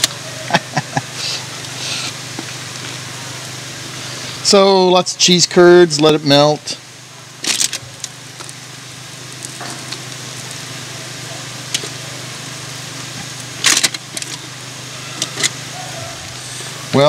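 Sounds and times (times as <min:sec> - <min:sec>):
food sizzling on a grill: 0:00.1 - 0:17.0
aluminium foil crackling: 0:07.3 - 0:15.7.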